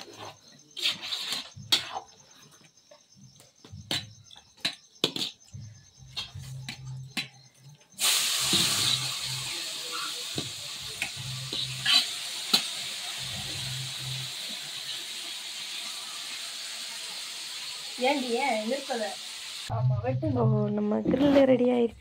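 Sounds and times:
ladle scraping a steel pot: 0.0 - 2.2
loud steady hiss: 8.0 - 19.7.

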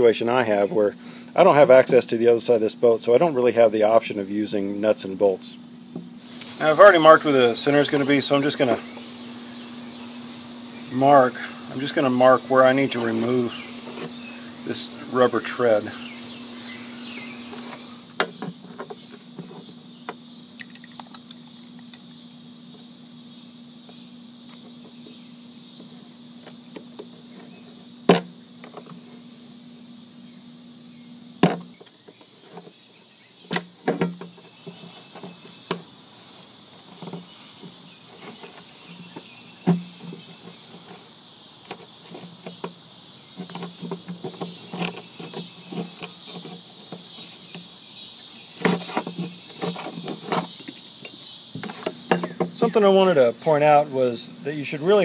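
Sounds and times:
insects chirping: 0.0 - 55.0
low steady hum: 0.0 - 55.0
clicks and knocks on aluminum: 48.6 - 52.6.

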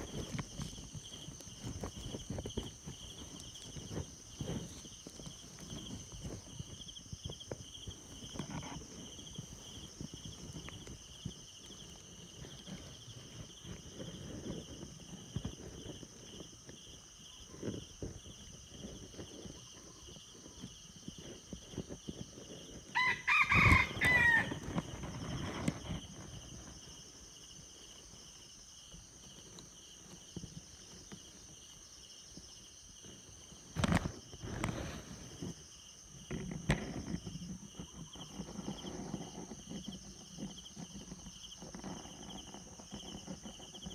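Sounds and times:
insects chorus: 0.0 - 43.9
rooster crowing: 22.9 - 24.7.

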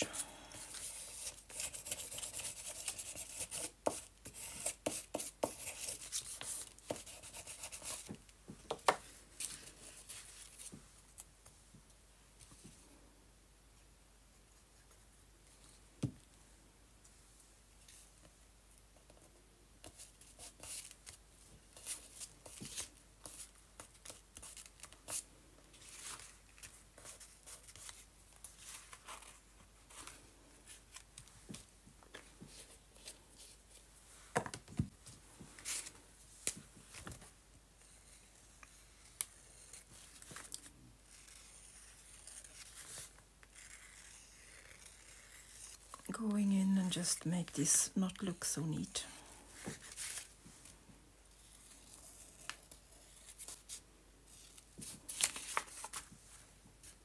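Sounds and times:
paper rustling: 51.4 - 57.0.

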